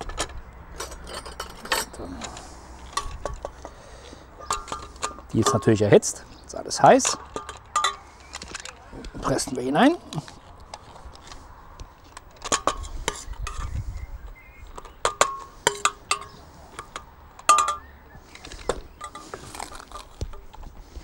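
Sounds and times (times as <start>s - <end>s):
utensils clinking on steel pot: 0.0s - 2.3s, 4.4s - 5.9s, 7.0s - 8.8s, 14.7s - 18.0s.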